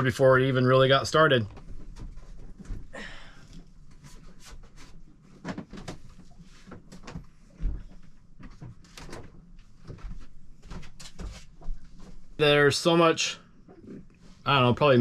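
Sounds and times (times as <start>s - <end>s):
knocks clicks and rattles of handling: 5.4s - 11.3s.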